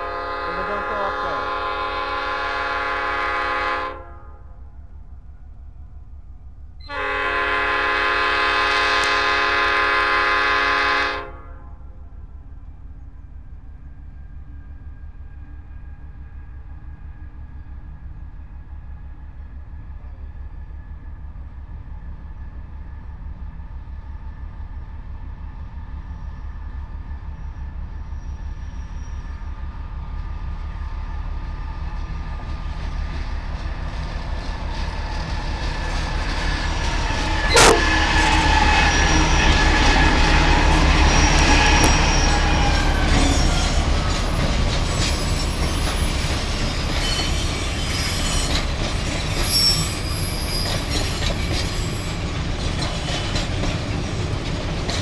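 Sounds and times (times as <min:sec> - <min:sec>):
diesel locomotive engine rumble: 0:00.0 - 0:55.0
high wheel squeal: 0:36.4 - 0:53.4
sharp bang: 0:37.5 - 0:38.3.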